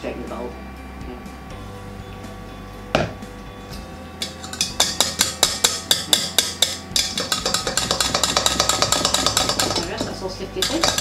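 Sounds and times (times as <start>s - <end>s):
single knock: 3.0s - 3.2s
sieve rattling taps on bowl: 4.7s - 11.0s.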